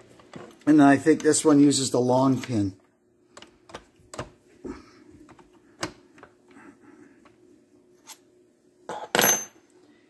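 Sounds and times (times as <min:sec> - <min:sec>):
metal part clattering down: 0:08.9 - 0:09.6.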